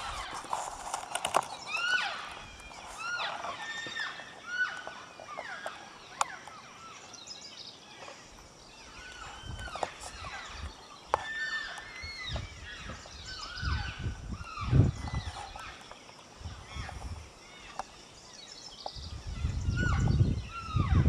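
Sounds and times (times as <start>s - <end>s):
elk chirping and mewing: 0.0s - 6.6s.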